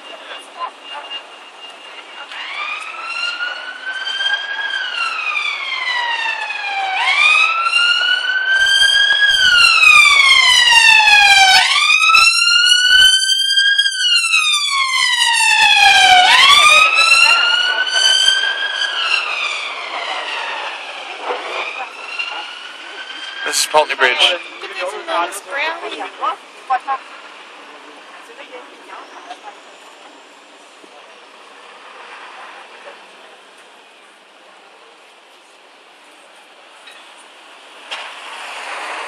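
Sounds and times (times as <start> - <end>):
emergency siren wailing: 0.0 - 27.0.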